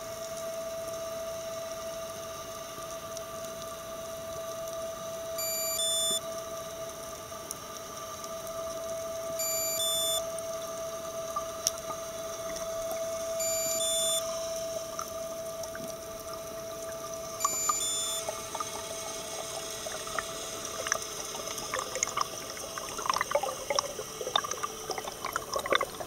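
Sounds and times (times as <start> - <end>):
steady two-tone hum: 0.0 - 26.0
electronic beeps: 5.4 - 6.2, 9.4 - 10.2, 13.4 - 14.3, 17.4 - 19.0.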